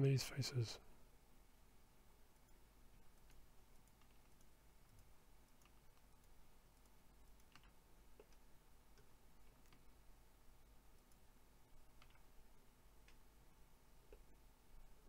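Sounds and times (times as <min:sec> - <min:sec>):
computer mouse clicks: 0:02.3 - 0:10.0, 0:10.9 - 0:12.3, 0:13.0 - 0:13.2.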